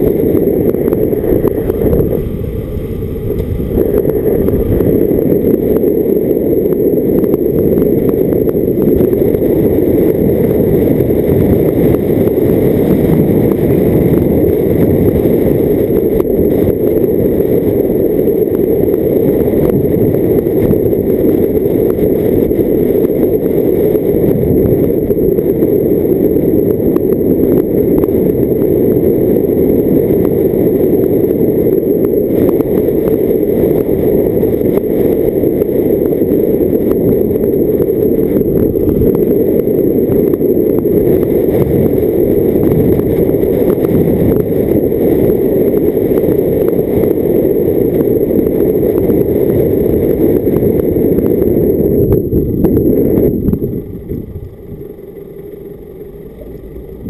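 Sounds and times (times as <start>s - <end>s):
car engine and tyre rumble: 0.0s - 57.0s
wind buffeting microphone: 0.0s - 57.0s.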